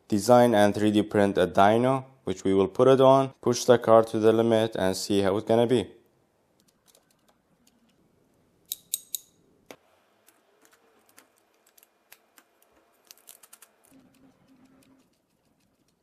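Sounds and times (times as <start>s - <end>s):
small metal gears clicking: 8.7s - 9.4s.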